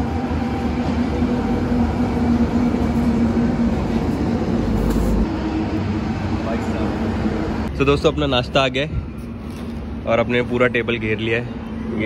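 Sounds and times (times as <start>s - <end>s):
engine running low rumble: 0.0s - 12.0s.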